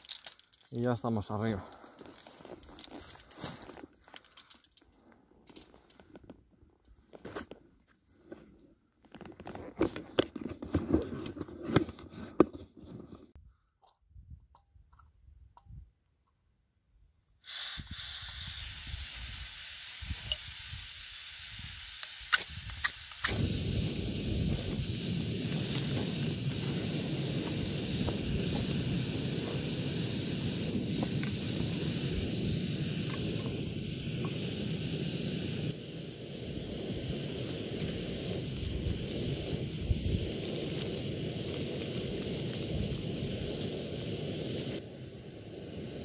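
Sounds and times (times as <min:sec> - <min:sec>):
steady hiss: 0:17.4 - 0:46.0.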